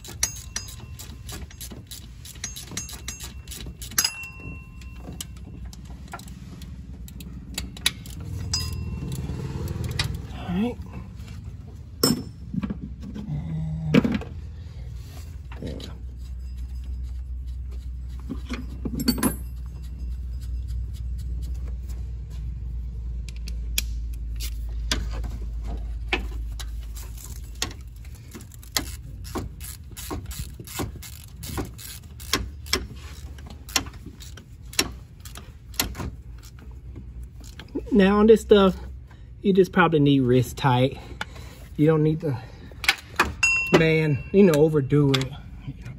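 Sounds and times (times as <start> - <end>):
hand ratchet clicking: 0.0 - 10.3, 26.5 - 36.6
low steady hum: 0.0 - 45.9.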